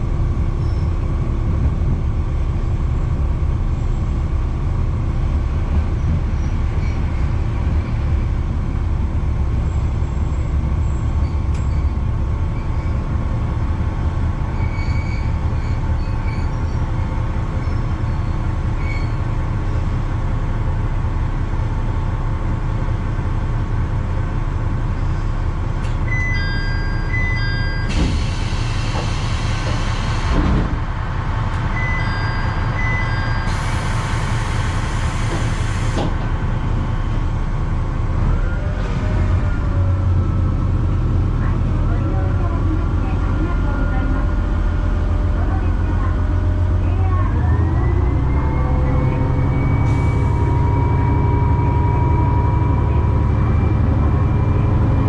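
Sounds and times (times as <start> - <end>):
diesel railcar engine rumble: 0.0 - 55.0
loud hiss of air: 27.9 - 30.4, 33.5 - 36.2.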